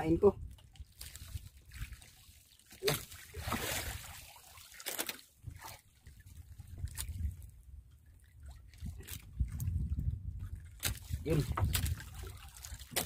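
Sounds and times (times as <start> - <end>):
rumble of sea and wind: 0.0 - 2.1, 5.3 - 13.0
water trickling and splashing: 0.0 - 13.0
knocks of fish on boat: 10.8 - 12.0.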